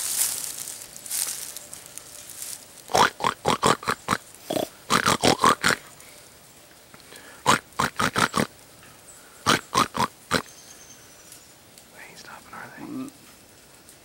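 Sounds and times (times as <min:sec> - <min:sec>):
wild hogs grunting: 0:02.9 - 0:06.1, 0:07.1 - 0:08.6, 0:09.3 - 0:10.5, 0:12.7 - 0:13.2.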